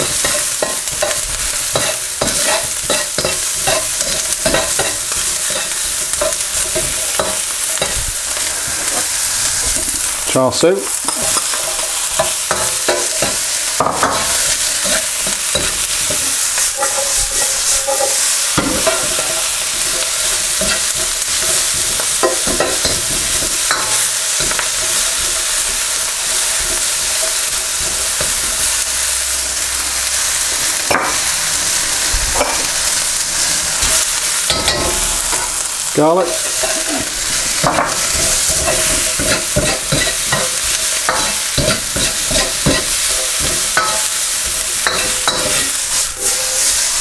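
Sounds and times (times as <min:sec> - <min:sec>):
food sizzling in a wok: 0:00.0 - 0:47.0
metal ladle scraping wok: 0:11.1 - 0:24.6, 0:36.3 - 0:47.0.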